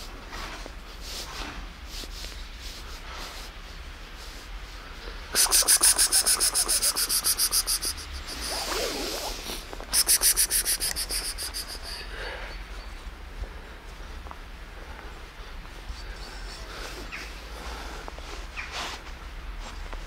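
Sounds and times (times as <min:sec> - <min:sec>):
soft fur rustling: 0:00.0 - 0:12.1, 0:13.0 - 0:20.0
hand scratching cat fur: 0:05.3 - 0:12.0.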